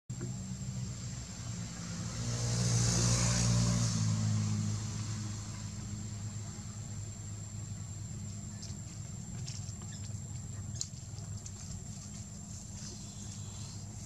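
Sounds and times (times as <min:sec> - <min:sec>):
vehicle passing by: 0:00.2 - 0:08.2.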